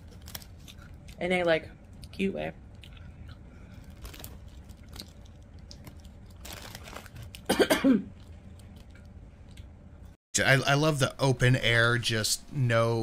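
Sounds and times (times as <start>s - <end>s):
handling and eating noises: 0.0s - 1.2s, 1.9s - 9.8s
person coughing: 7.5s - 8.1s.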